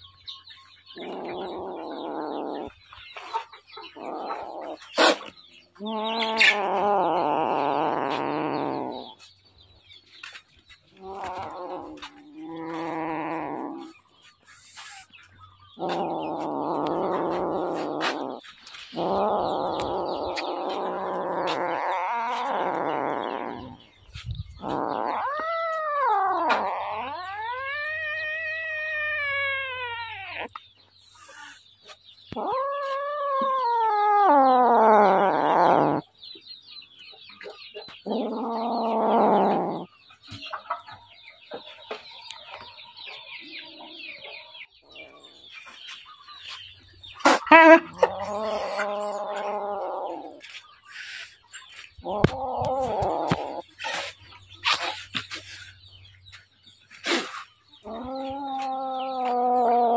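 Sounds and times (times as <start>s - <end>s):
cat yowling: 5.8s - 9.2s, 11.0s - 13.9s, 19.0s - 23.8s, 24.6s - 30.6s, 32.3s - 36.0s, 38.1s - 39.9s, 47.3s - 50.5s, 52.0s - 53.8s, 57.8s - 59.9s.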